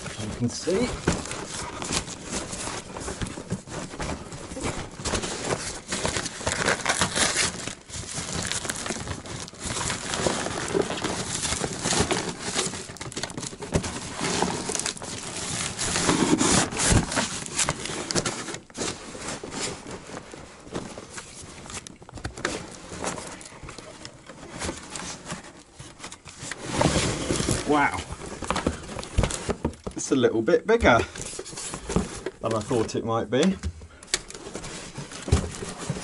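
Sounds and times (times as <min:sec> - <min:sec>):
paper bag tearing and crinkling: 0:00.0 - 0:03.6, 0:04.6 - 0:19.9, 0:26.4 - 0:29.6
loose filling rustling: 0:00.0 - 0:36.0.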